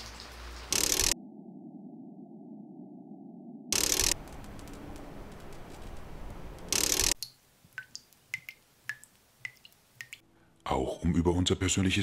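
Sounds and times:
water dripping: 0.0 - 1.2, 3.8 - 10.3
loud mechanical sound effect: 3.7 - 4.2.

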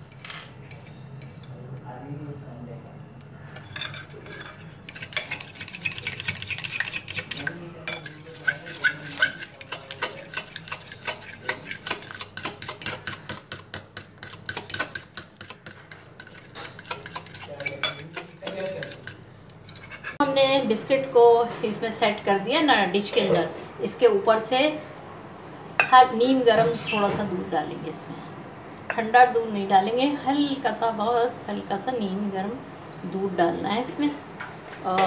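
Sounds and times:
utensil clinking against glass bowl: 3.6 - 20.2.

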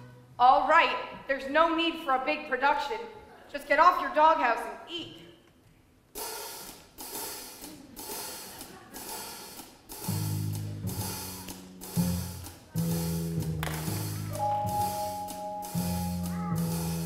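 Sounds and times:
drum and cymbal beat: 6.2 - 17.0
low bass notes: 10.0 - 17.0.

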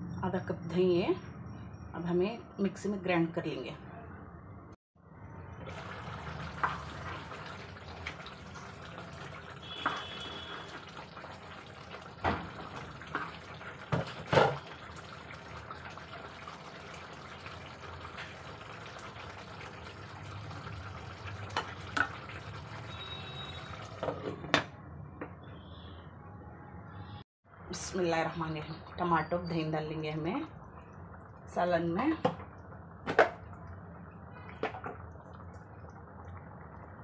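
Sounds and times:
curry bubbling in a pan: 5.4 - 24.1, 28.8 - 37.0.

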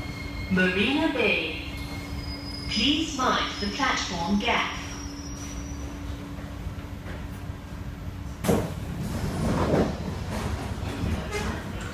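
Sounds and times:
metro train rumbling: 0.0 - 11.9
train doors sliding open: 8.2 - 11.9.

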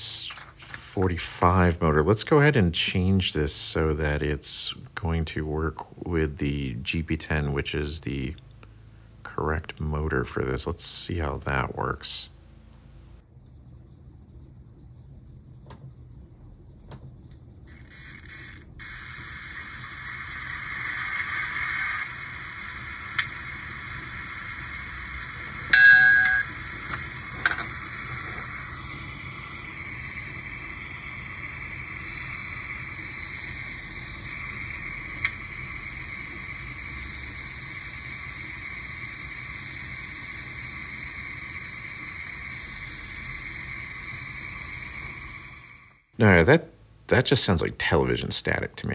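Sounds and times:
thin static hiss from speaker: 0.0 - 13.6, 18.6 - 48.9
chime-like tone: 25.7 - 26.5.

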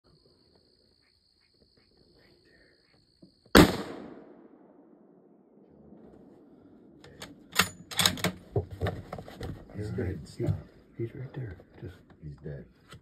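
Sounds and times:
rifle shot with echo: 3.5 - 5.5.

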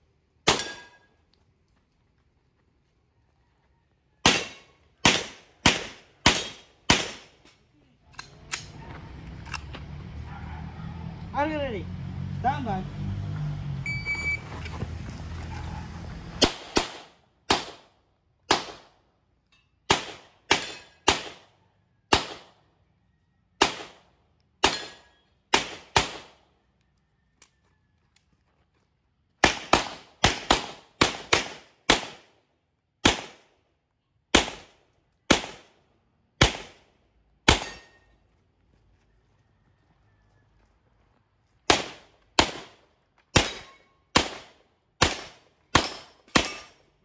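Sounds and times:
handgun shots: 4.3 - 7.3.

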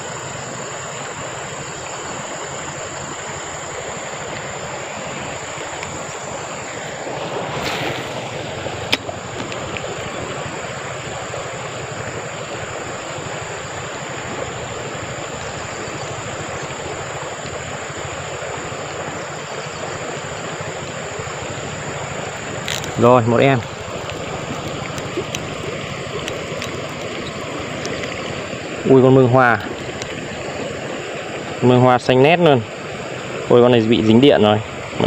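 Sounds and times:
high-pitched insect drone: 0.0 - 35.0
stream water flowing: 0.0 - 35.0
whoosh: 7.5 - 8.4.

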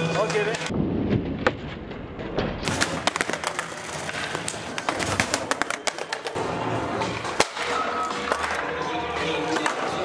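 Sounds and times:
skateboard wheels rolling: 1.8 - 10.0
skateboard clattering on concrete: 2.6 - 6.4.

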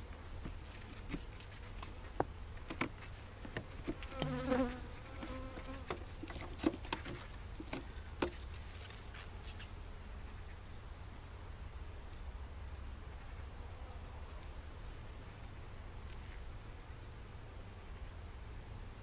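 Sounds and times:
honeybees buzzing: 0.0 - 11.7.

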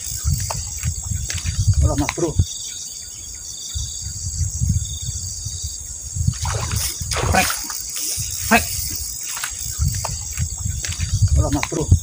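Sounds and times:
insects buzzing: 0.0 - 12.0
lure splashing on water: 6.3 - 11.8.

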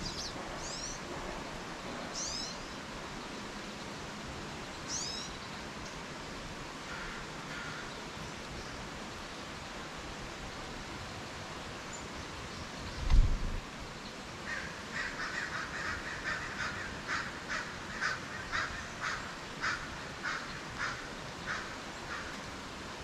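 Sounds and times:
lower bird calls: 0.0 - 1.1, 2.1 - 2.9, 4.8 - 5.6
songbirds chirping: 0.0 - 10.0, 11.0 - 23.0
steady background hiss: 0.0 - 23.0.

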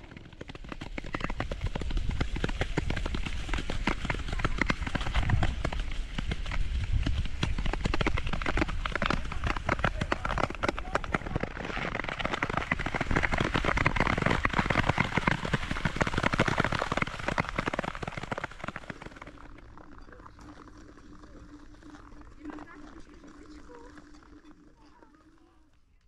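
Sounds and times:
ice skates scraping on ice: 6.6 - 24.4.

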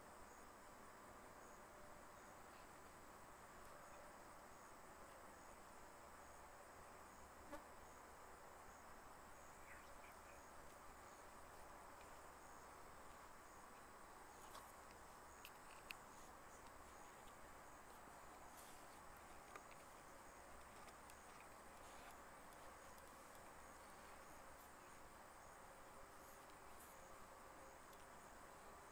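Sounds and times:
faint steady hiss: 0.0 - 28.9
high insect chirp: 0.0 - 28.9
faint ticks: 13.7 - 23.6.

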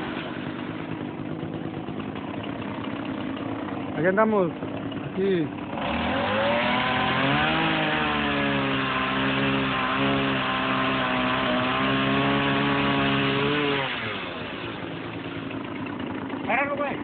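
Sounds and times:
chainsaw cutting wood: 0.0 - 17.0.

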